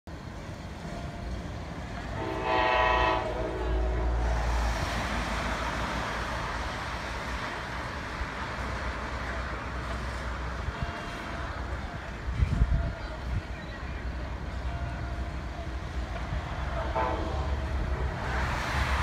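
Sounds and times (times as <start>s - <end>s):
train horn blast: 2.1s - 4.5s, 16.8s - 18.3s.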